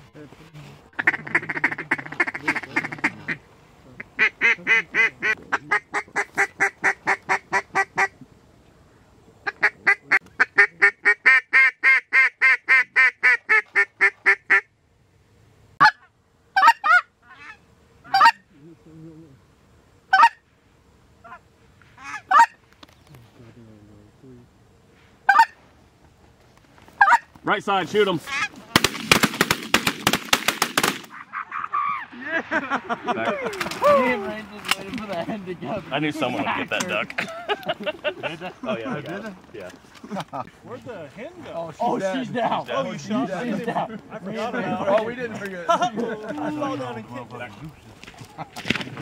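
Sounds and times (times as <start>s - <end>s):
goose call honks and clucks: 1.0s - 3.4s, 4.0s - 8.2s, 9.4s - 14.7s, 15.8s - 18.5s, 20.1s - 20.4s, 22.0s - 22.6s, 25.3s - 25.6s, 27.0s - 27.4s, 28.2s - 28.8s.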